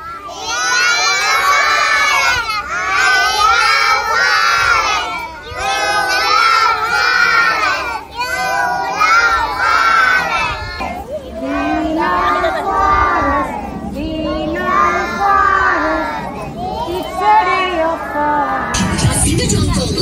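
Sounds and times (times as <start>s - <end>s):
children shouting in chorus: 0.0s - 13.7s.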